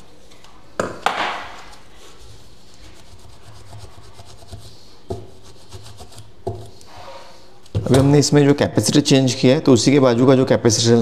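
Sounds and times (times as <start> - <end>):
scraping on a circuit board: 2.1 - 7.4.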